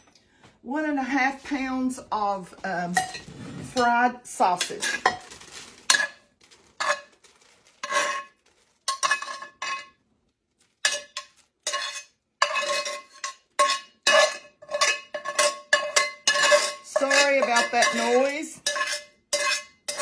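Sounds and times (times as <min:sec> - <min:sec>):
spoon scraping metal skillet: 0:02.7 - 0:06.2, 0:06.8 - 0:07.2, 0:07.8 - 0:10.0, 0:10.8 - 0:20.0.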